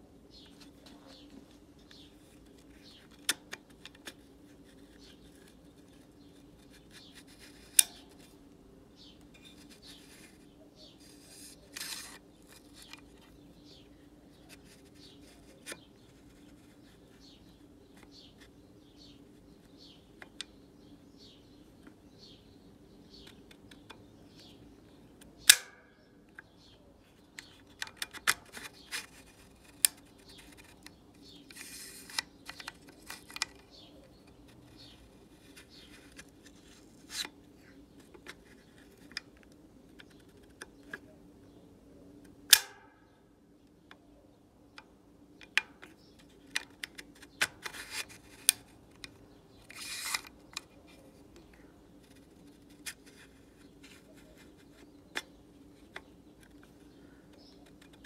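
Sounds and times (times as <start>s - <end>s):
rifle action clicking and snapping: 42.5s - 42.8s.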